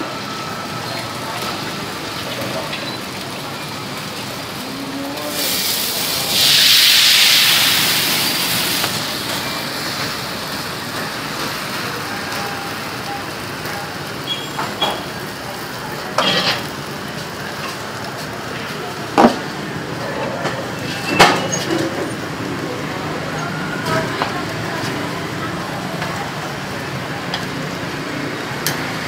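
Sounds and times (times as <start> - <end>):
batter sizzling in hot oil: 0.6 - 18.6.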